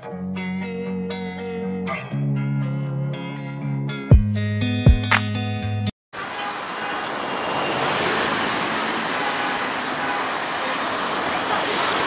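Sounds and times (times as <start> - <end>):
road traffic noise: 6.1 - 12.0.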